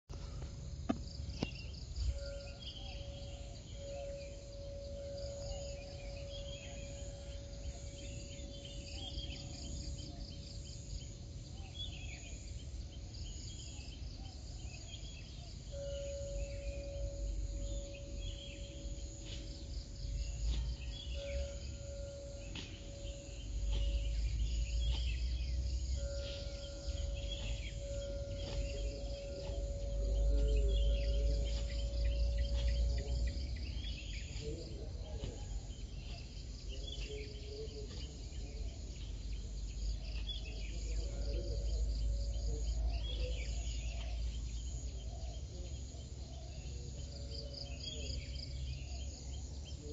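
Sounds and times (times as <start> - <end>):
steady pitched hum: 0.1 - 45.5
birds chirping: 0.1 - 49.9
fast insect trill: 0.6 - 35.2
low rumble: 15.8 - 36.7.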